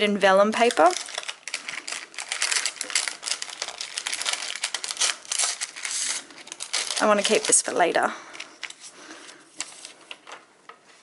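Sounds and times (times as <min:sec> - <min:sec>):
paper crinkling and rustling: 0:00.6 - 0:11.0
tape peeling: 0:00.9 - 0:07.6.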